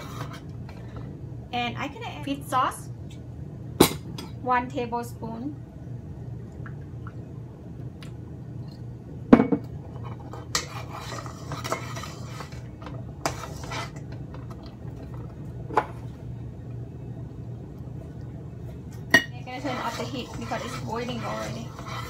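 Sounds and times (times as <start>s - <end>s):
low steady hum: 0.0s - 22.0s
stirring sauce: 10.1s - 15.2s, 19.4s - 22.0s.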